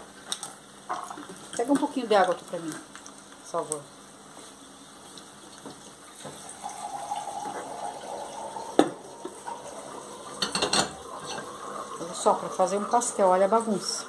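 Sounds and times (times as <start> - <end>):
water running from a tap: 5.5 - 14.0.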